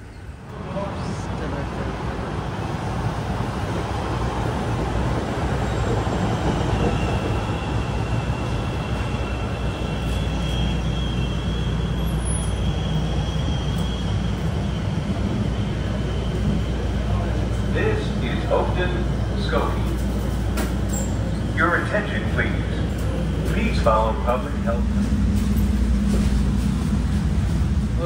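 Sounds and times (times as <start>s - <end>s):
train wheels and motors rumbling: 0.0s - 28.0s
high-pitched brake squeal: 6.6s - 14.8s, 20.9s - 21.4s.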